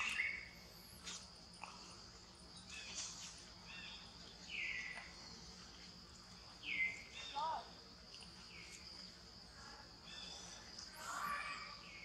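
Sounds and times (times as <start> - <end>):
high-pitched insect drone: 9.6 - 12.0.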